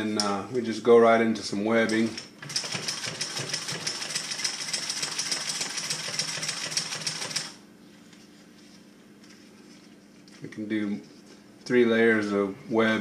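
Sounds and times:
sewing machine stitching: 0:02.0 - 0:07.6.

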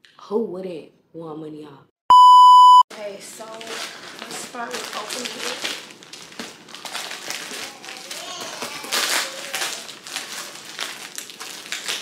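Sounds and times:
plastic mailer bag crinkling: 0:02.9 - 0:12.0
loud sharp plastic tear: 0:03.6 - 0:12.0.

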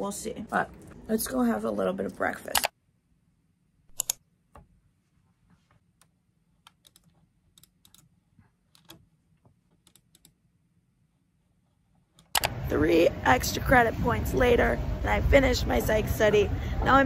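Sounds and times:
keyboard typing clicks: 0:03.9 - 0:04.2, 0:06.6 - 0:08.1, 0:09.8 - 0:10.4, 0:12.2 - 0:12.6.

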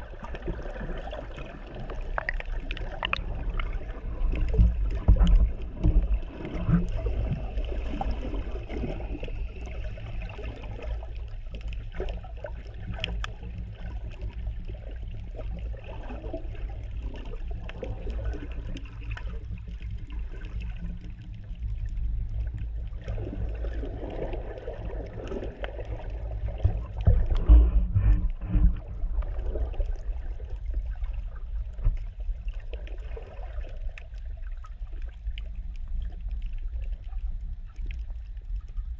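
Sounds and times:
muffled underwater rumble: 0:00.0 - 0:38.9
faint clicks: 0:12.9 - 0:14.4.

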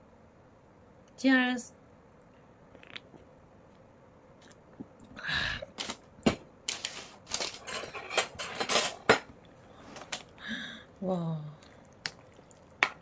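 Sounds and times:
tableware clinking and clattering: 0:06.3 - 0:09.3.

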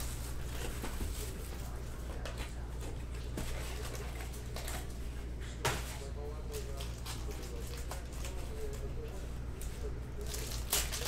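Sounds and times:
foil packs rustling: 0:00.0 - 0:04.9, 0:09.7 - 0:11.0
steady low hum: 0:00.0 - 0:11.0.

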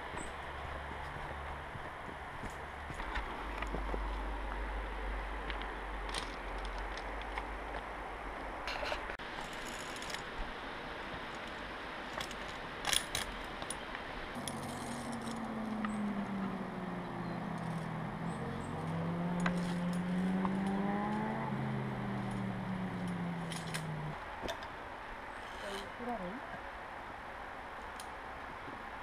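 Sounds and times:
engine hum: 0:14.2 - 0:26.3
climbing gear jangling: 0:14.4 - 0:15.5, 0:23.1 - 0:23.9.

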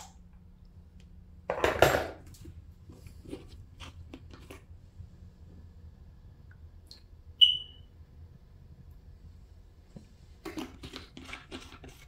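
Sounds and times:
low steady hum: 0:00.0 - 0:12.0
high-pitched electronic chirp: 0:07.4 - 0:07.8.

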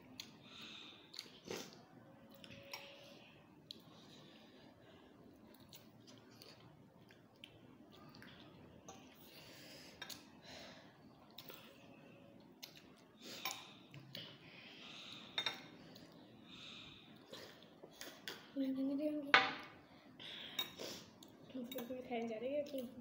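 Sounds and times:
metal forks clinking on glass bowls: 0:21.6 - 0:22.0.

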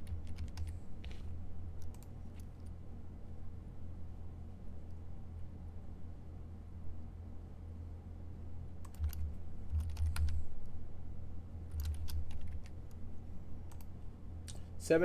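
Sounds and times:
typing on computer keyboard: 0:00.0 - 0:00.8, 0:08.8 - 0:10.4, 0:11.7 - 0:12.8
low steady hum: 0:00.0 - 0:15.0.

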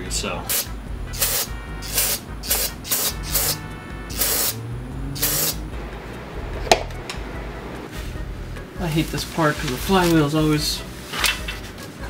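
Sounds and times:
background music: 0:00.0 - 0:12.0
aerosol spray hissing bursts: 0:00.5 - 0:04.6, 0:05.2 - 0:05.6.

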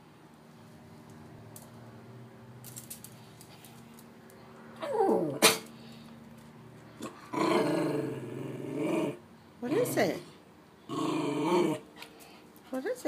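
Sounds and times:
small dog growling: 0:04.8 - 0:05.6, 0:07.0 - 0:10.3, 0:10.9 - 0:11.9.

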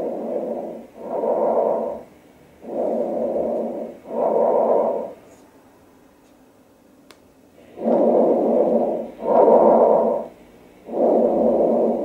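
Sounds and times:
breathing through stethoscope: 0:00.0 - 0:05.3, 0:07.6 - 0:10.3, 0:10.9 - 0:12.0.

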